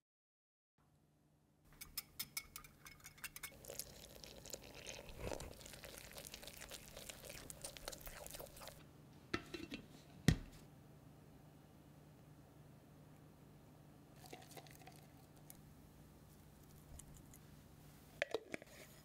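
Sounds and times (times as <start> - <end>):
spoon clinking against glass: 1.8 - 3.8
water pouring onto flour: 3.5 - 8.8.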